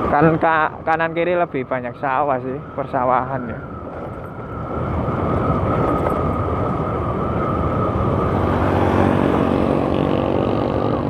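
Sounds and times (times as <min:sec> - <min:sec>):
wind rumble on microphone: 0:00.0 - 0:11.0
scooter engine droning: 0:03.6 - 0:11.0.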